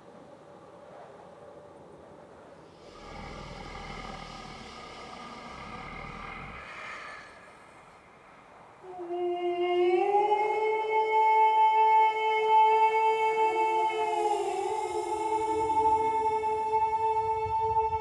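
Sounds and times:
deep airy breath with low rumble: 2.6s - 9.0s, 13.3s - 18.0s
faint sustained tones: 2.7s - 18.0s
high-pitched wordless vocal call: 2.8s - 18.0s.

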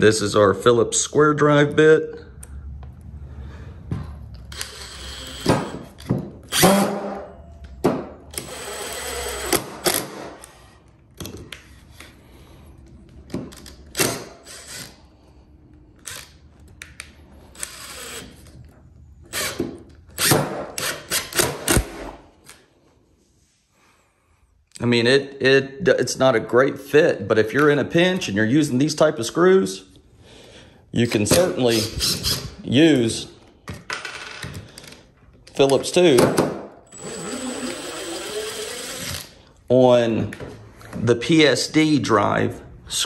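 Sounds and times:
impact driver driving screw: 4.5s - 7.2s, 8.3s - 10.6s, 19.3s - 22.1s, 31.7s - 32.6s, 36.9s - 39.3s.

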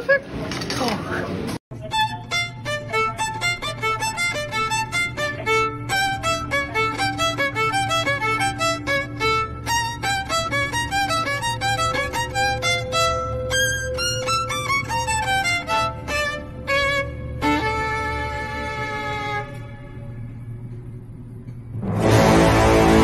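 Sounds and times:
violin playing fast tune: 1.8s - 19.8s.

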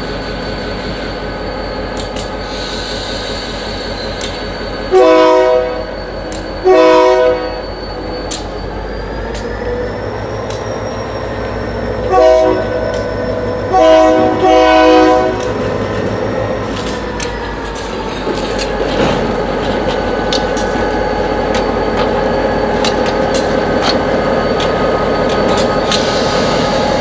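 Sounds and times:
train clanks: 0.0s - 27.0s
locomotive horn blasts: 4.9s - 5.9s, 6.6s - 7.6s, 12.0s - 12.8s, 13.7s - 15.6s
diesel engine rumbling: 8.0s - 27.0s.

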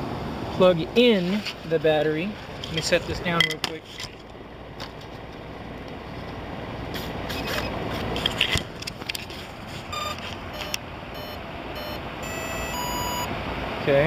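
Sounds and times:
handling rustle: 1.1s - 5.4s, 7.4s - 10.7s
short electronic beep: 9.9s - 13.3s.

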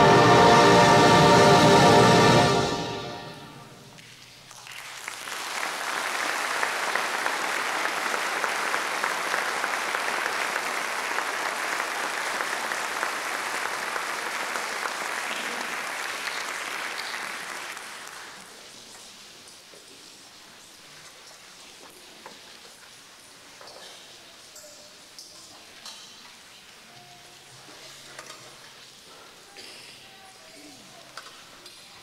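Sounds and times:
audience applauding: 4.0s - 18.6s.

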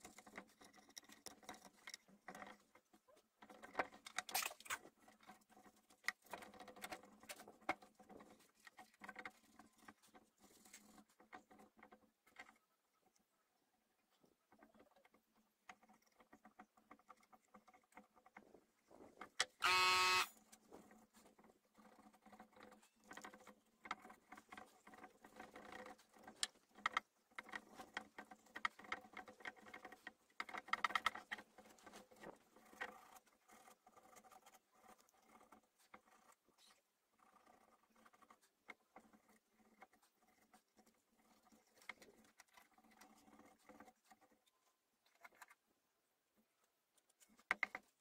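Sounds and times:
scrapes and taps on wood: 47.0s - 48.0s.

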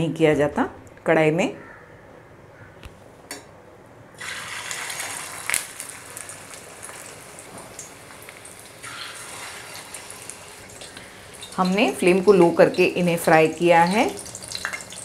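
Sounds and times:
patties sizzling in oil: 4.2s - 15.0s.

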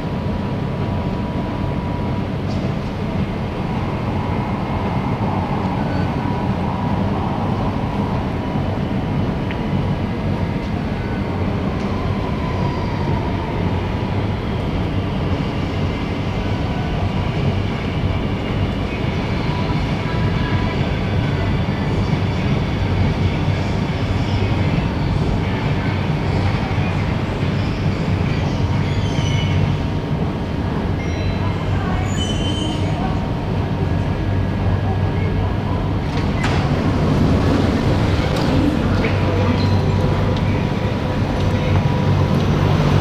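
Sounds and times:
train rumbling through tunnel: 0.0s - 43.0s
faint high wheel squeal: 31.0s - 33.0s, 39.4s - 40.0s.

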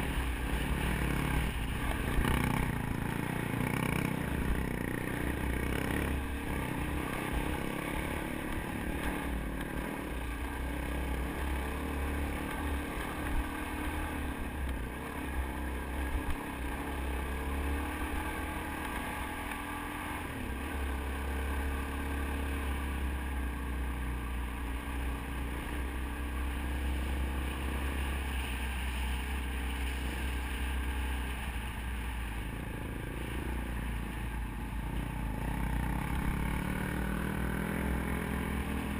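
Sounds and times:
dirt bike engine revving: 0.0s - 14.4s, 35.4s - 38.9s.

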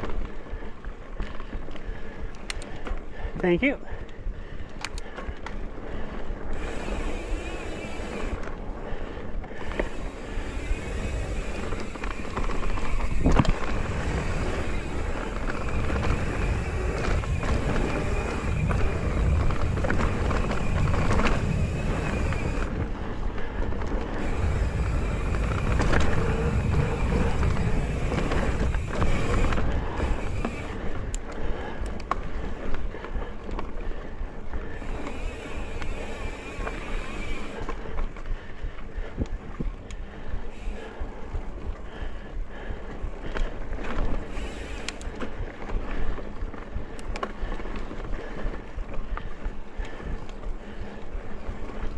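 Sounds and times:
bike tyres rumbling on dirt trail: 0.0s - 51.9s
wind on camera microphone: 9.9s - 31.3s.

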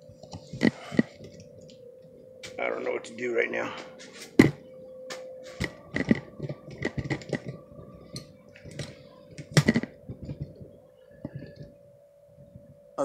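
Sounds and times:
faint steady hum: 0.0s - 13.0s
phone being handled and tapped: 4.3s - 11.8s.

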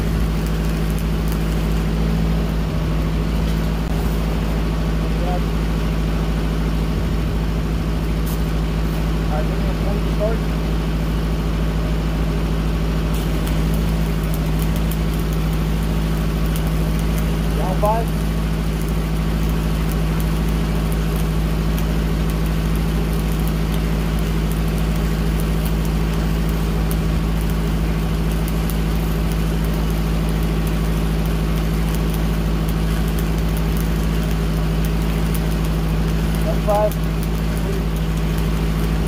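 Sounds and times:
welding arc crackling: 0.0s - 39.0s
welding machine engine humming: 0.0s - 39.0s.

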